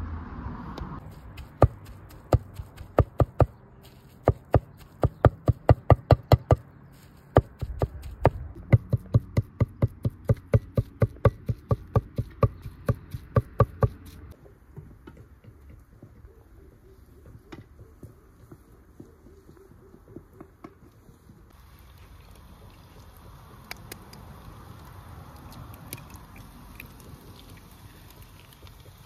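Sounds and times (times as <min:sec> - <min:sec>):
cleaver chopping on wooden block: 0:01.4 - 0:03.6, 0:04.2 - 0:06.6, 0:07.4 - 0:14.0.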